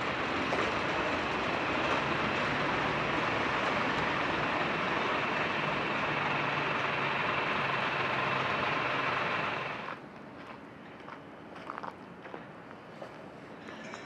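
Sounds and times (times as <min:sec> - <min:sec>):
faint low engine hum: 0:00.0 - 0:10.0
heavy vehicle running: 0:00.0 - 0:10.0.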